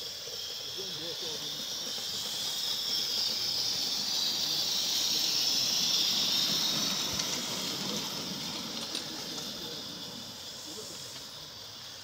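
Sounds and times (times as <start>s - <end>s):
steam locomotive hissing: 0.0s - 12.0s.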